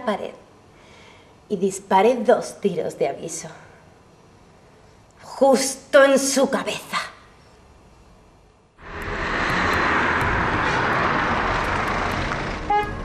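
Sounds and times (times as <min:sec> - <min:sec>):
loud engine roar: 0:08.8 - 0:13.0.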